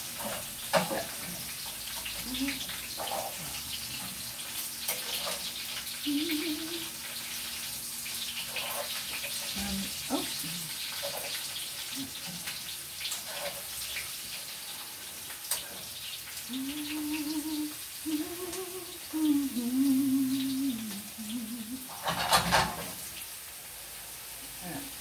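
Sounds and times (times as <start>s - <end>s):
chips frying in a pan: 0.0s - 25.0s
woman humming: 2.2s - 2.7s, 6.0s - 7.0s, 9.6s - 10.7s, 16.5s - 21.9s.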